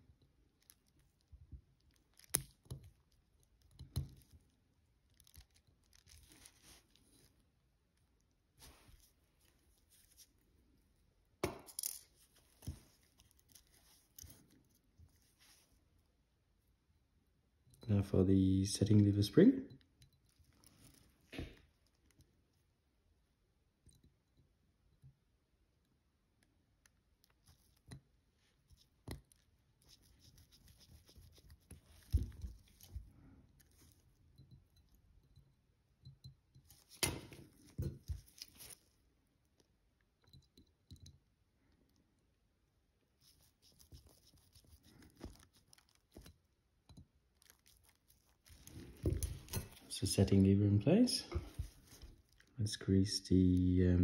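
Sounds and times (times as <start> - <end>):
small tools clicking and scratching: 0.4 - 7.4, 11.6 - 15.7, 26.8 - 39.0, 43.2 - 49.9
small tools clicking and tapping: 0.6 - 4.5, 40.2 - 41.2.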